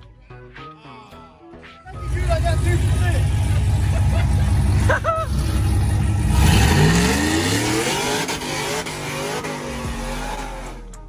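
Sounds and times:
truck engine revving: 0:01.9 - 0:11.0
tires squealing on pavement: 0:04.5 - 0:10.9.

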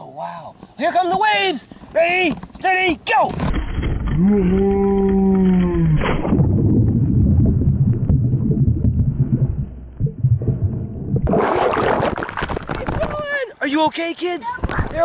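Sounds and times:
splashing water: 0:11.2 - 0:13.2.

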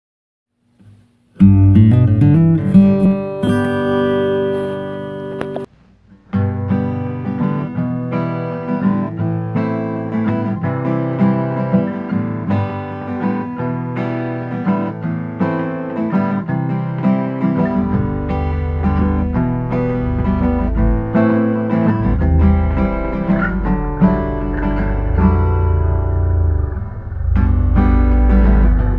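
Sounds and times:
strummed acoustic guitar music: 0:00.8 - 0:28.9
deeper low notes: 0:17.6 - 0:28.9.

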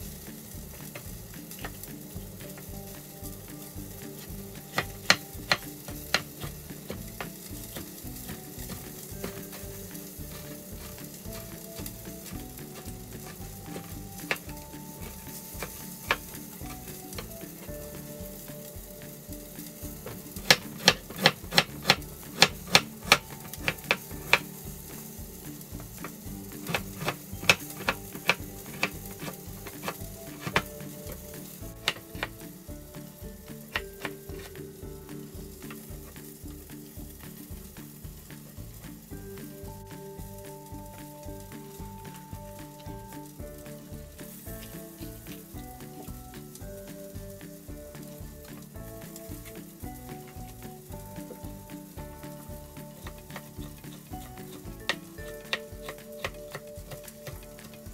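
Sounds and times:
food sizzling in a frying pan: 0:00.0 - 0:57.9
utensil clicking against pan: 0:00.8 - 0:34.5, 0:52.3 - 0:57.9.

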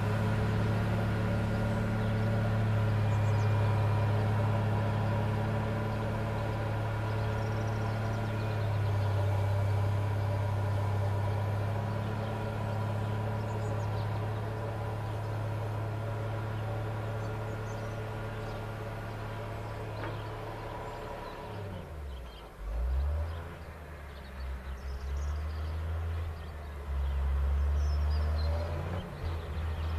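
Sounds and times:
diesel engine droning: 0:00.0 - 0:29.9.

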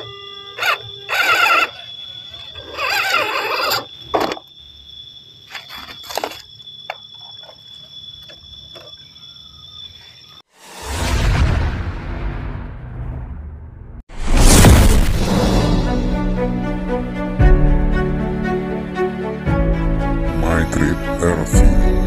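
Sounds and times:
electric motors whining: 0:00.0 - 0:04.4.

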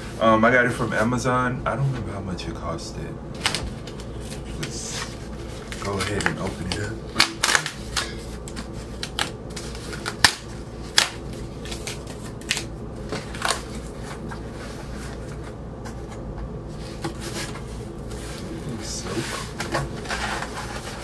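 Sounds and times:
low steady hum: 0:00.0 - 0:21.0
cardboard mailer rustling and snapping: 0:05.7 - 0:14.2.

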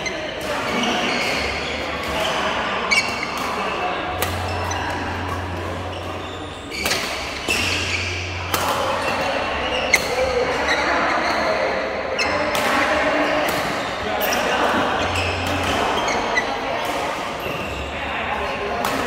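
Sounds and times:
racket hitting shuttlecock: 0:00.4 - 0:10.1.

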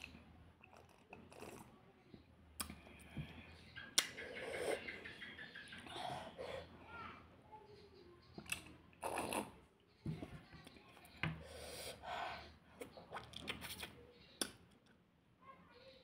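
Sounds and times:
sipping and gulping: 0:00.0 - 0:01.7, 0:08.4 - 0:09.7.

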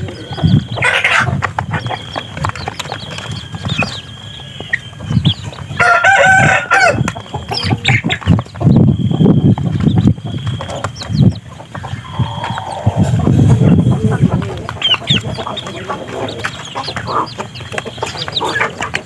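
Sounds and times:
chicks peeping and clucking: 0:00.0 - 0:19.0
rooster crowing: 0:05.7 - 0:07.2.

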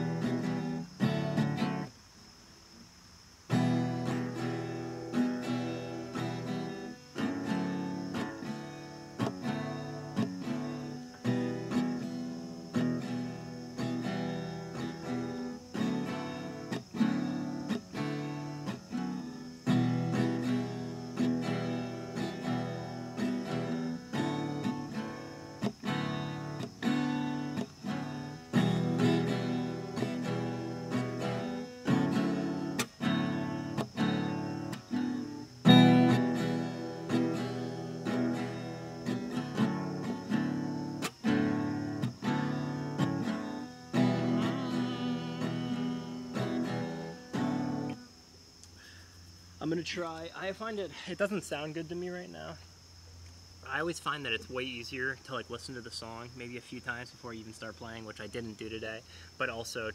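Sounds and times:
acoustic guitar strumming: 0:00.0 - 0:01.9, 0:03.5 - 0:48.1.

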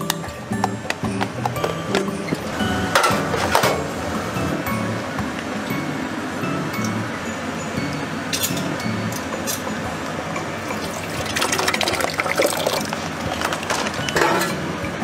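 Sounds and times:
thick sauce pouring into container: 0:10.7 - 0:13.1.

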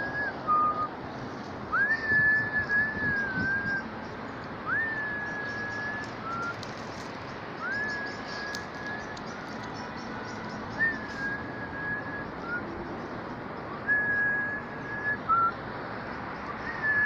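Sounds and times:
whistled notes: 0:00.0 - 0:00.9, 0:01.7 - 0:03.9, 0:04.7 - 0:06.7, 0:07.6 - 0:09.4, 0:10.4 - 0:12.7, 0:13.7 - 0:15.6, 0:16.4 - 0:17.0.

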